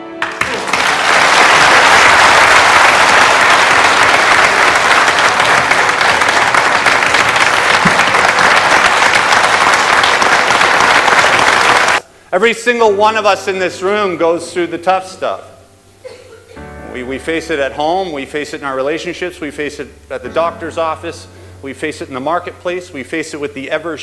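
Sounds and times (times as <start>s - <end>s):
people applauding: 0.2s - 12.0s.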